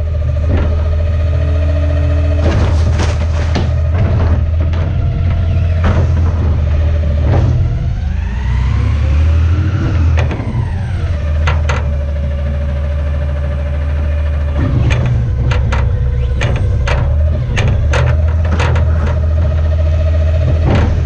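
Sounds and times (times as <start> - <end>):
garbage truck engine revving: 0.0 - 21.0
hydraulic whine: 0.0 - 21.0
metal clanks: 0.2 - 8.0, 14.4 - 21.0.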